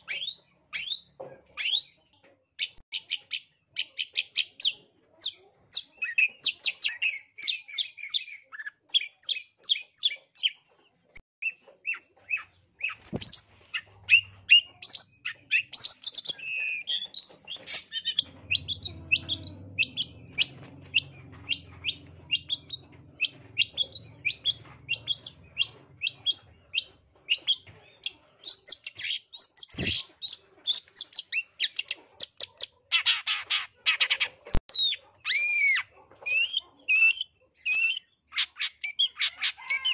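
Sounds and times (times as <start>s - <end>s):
shrike chattering song: 11.4s - 39.9s.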